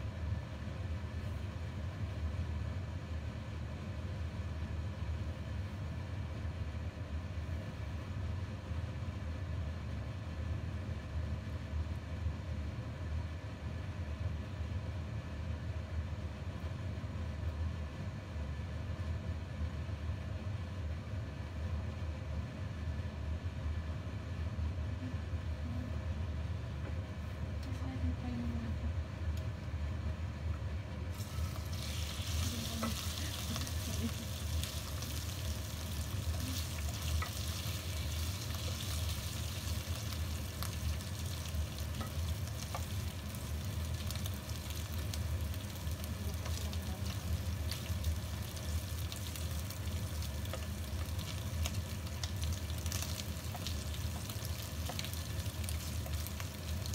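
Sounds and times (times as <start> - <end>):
steady low hum: 0.0 - 56.9
prawns sizzling in hot oil: 31.1 - 56.9.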